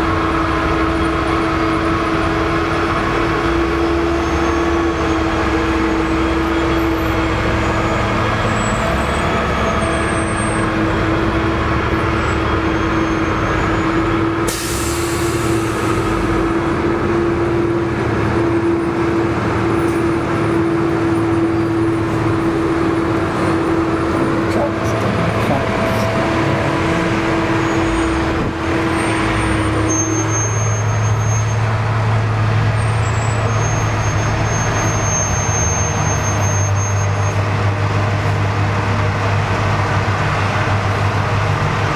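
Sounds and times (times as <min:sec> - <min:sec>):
diesel truck engine droning: 0:00.0 - 0:41.9
air brake hiss: 0:14.5 - 0:16.2.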